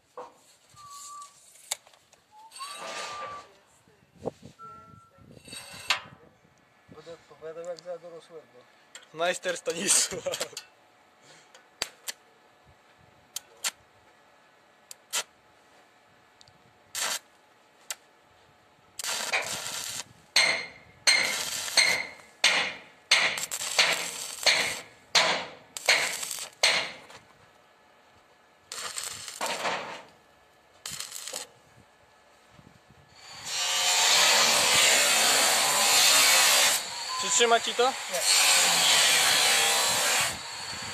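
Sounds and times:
welding electrode snaps: 0:11.8 - 0:12.2, 0:13.3 - 0:13.8, 0:14.9 - 0:15.3, 0:16.9 - 0:18.1, 0:19.0 - 0:27.2, 0:28.7 - 0:30.2, 0:30.8 - 0:31.5
arc welding crackling: 0:13.3 - 0:13.8, 0:14.9 - 0:15.3, 0:16.9 - 0:18.1, 0:19.0 - 0:27.3, 0:28.6 - 0:31.6, 0:33.1 - 0:40.9.

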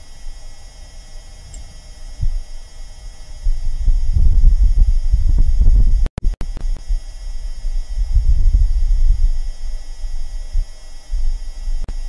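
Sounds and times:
low gusting wind rumble: 0:00.7 - 0:06.1, 0:06.9 - 0:11.8.

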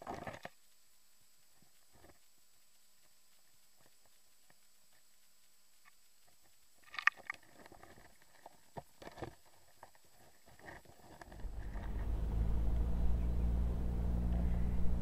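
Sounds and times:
low rumbling hum: 0:11.3 - 0:15.0.

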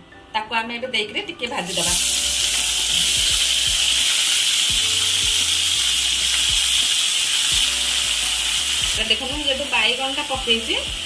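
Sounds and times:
vegetables sizzling in oil: 0:01.6 - 0:11.0.

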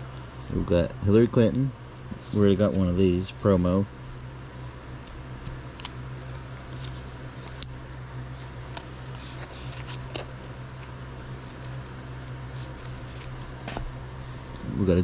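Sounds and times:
low hum: 0:00.0 - 0:15.0
plastic card sleeve rustling: 0:04.0 - 0:14.8.

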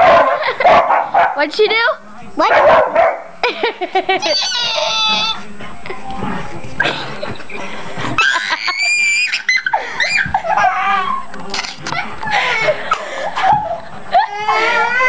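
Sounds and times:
girls laughing and giggling: 0:00.3 - 0:00.8, 0:03.4 - 0:05.4, 0:07.1 - 0:11.3, 0:11.9 - 0:15.0
high-pitched squeals: 0:04.2 - 0:05.4.

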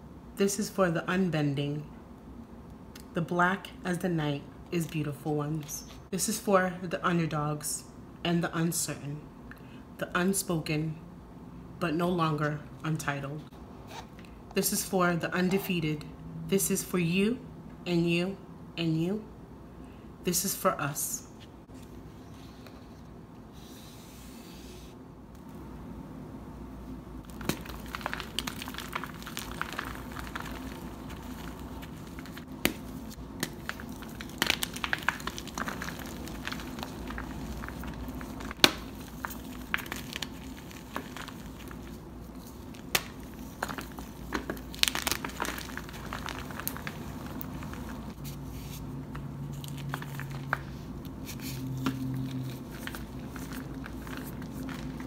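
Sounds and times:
chalk blocks crunching and snapping: 0:27.3 - 0:48.2.

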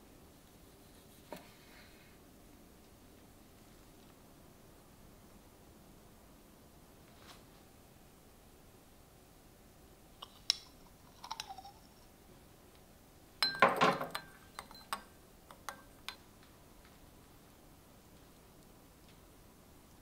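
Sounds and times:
ringing clinks of dishes: 0:13.4 - 0:15.0.

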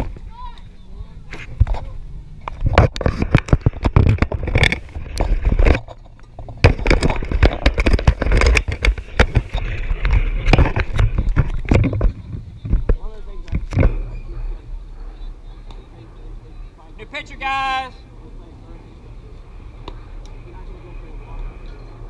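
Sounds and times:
camera handling scrapes and clicks: 0:02.5 - 0:12.2.

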